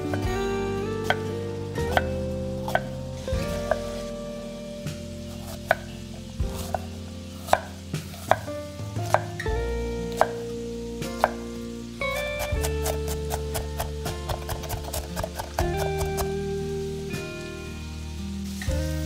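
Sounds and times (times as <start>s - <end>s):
background music: 0.0s - 19.0s
knife chopping on cutting board: 5.4s - 5.8s, 6.5s - 9.3s, 12.4s - 16.3s.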